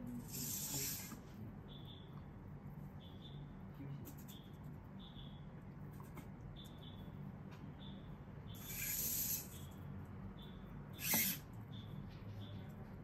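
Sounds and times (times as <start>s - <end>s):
servo motors whirring: 0.2s - 1.2s, 8.6s - 9.6s, 11.0s - 11.5s
soft high chirps: 0.2s - 5.7s, 6.4s - 13.0s.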